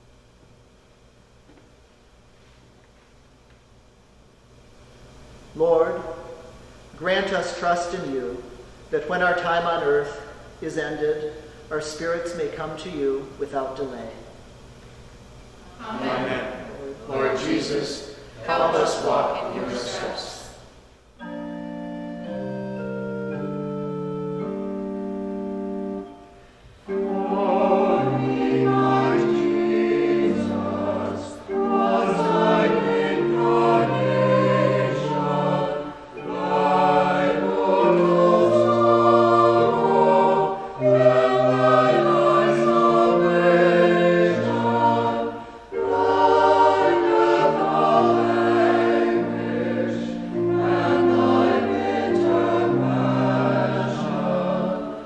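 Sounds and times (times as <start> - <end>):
choir singing a hymn: 15.8 - 55.0
pipe organ chords: 15.8 - 55.0.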